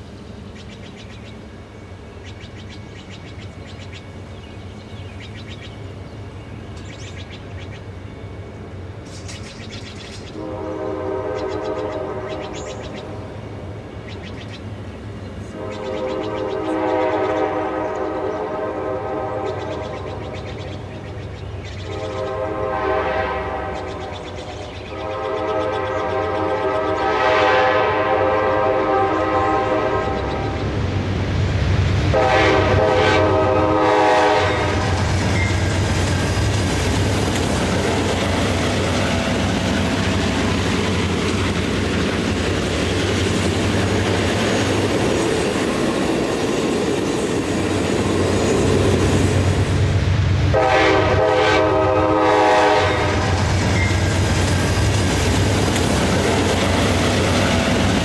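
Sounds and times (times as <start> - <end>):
train rumbling on rails: 0.0 - 58.0
locomotive air horn blasts: 10.4 - 12.5, 15.5 - 19.6, 21.9 - 24.1, 24.9 - 30.6, 32.1 - 35.6, 50.5 - 53.5.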